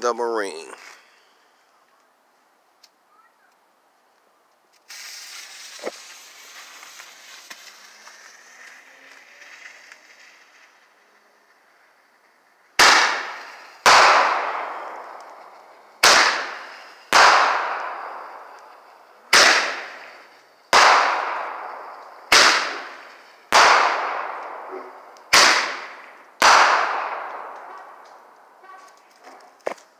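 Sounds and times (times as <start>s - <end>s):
fuse hissing: 4.8s - 10.7s
roman candle bangs with echo: 16.0s - 18.3s, 25.3s - 27.8s.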